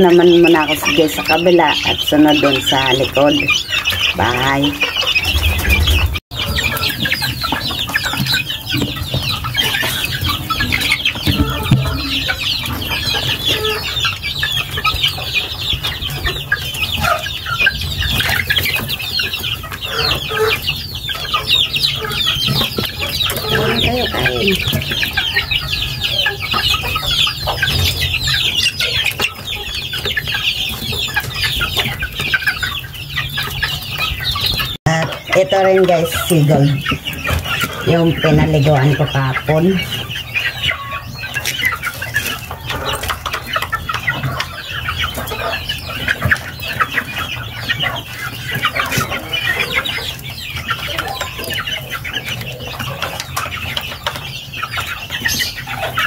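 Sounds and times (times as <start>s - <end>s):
chickens clucking: 0.0s - 56.0s
chicks peeping: 0.0s - 56.0s.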